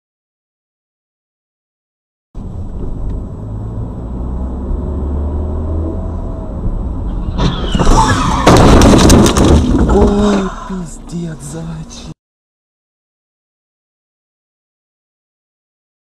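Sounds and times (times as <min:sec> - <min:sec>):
car engine and road rumble: 0:02.4 - 0:12.2
tyre screech: 0:07.0 - 0:10.9
car collision crunch: 0:07.2 - 0:10.7.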